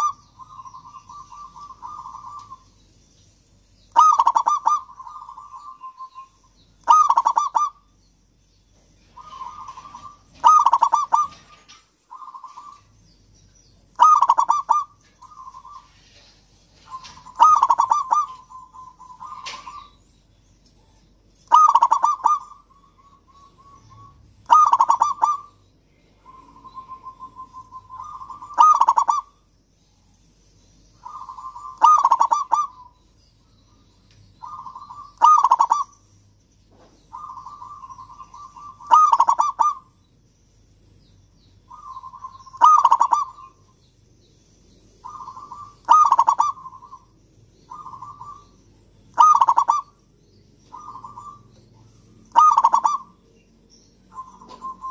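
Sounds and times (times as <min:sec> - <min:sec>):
dove cooing: 0:00.0 - 0:02.8, 0:03.9 - 0:07.8, 0:09.1 - 0:12.9, 0:13.9 - 0:20.0, 0:21.5 - 0:25.6, 0:26.2 - 0:29.4, 0:31.0 - 0:33.0, 0:34.4 - 0:36.0, 0:37.1 - 0:40.0, 0:41.7 - 0:43.6, 0:44.9 - 0:47.1, 0:47.7 - 0:50.0, 0:50.6 - 0:53.2, 0:54.1 - 0:54.9.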